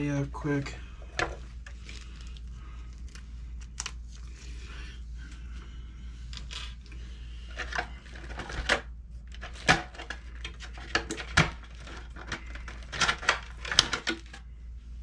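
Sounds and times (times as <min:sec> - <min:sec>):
hands handling plastic toy car: 0:06.2 - 0:14.4.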